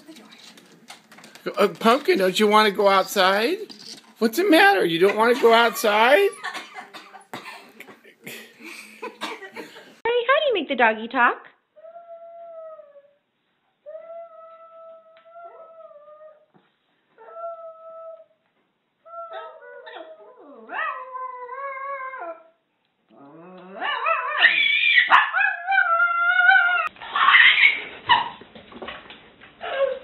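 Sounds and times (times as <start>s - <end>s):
small dog howling: 23.2s - 28.2s.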